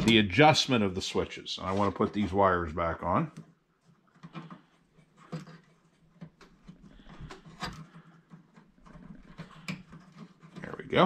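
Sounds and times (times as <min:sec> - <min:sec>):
wiring clicks and rustling: 0:03.2 - 0:11.0.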